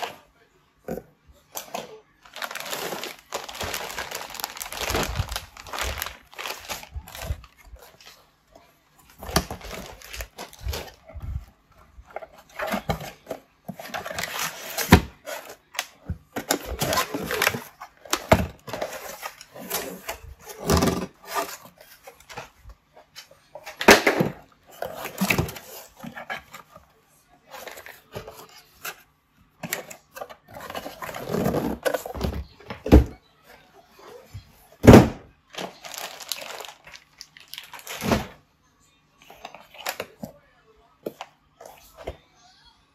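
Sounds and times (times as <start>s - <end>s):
plastic wrap crinkling: 1.7s - 8.2s, 9.2s - 11.0s, 35.5s - 38.1s.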